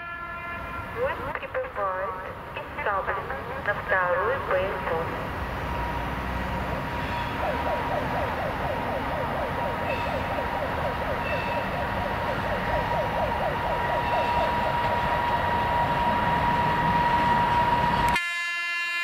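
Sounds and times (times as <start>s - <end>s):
electric locomotive running: 0.8s - 19.0s.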